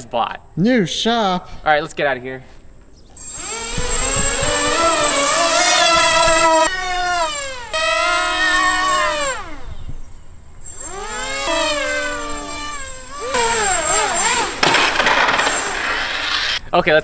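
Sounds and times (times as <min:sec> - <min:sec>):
model plane motor whining: 0:03.1 - 0:16.6
rush of noise: 0:13.3 - 0:16.7.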